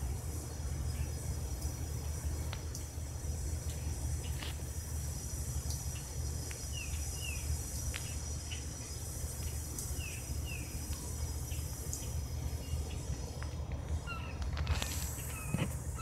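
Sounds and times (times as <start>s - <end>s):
high hiss: 0.0s - 16.0s
bird chirps: 14.0s - 14.4s.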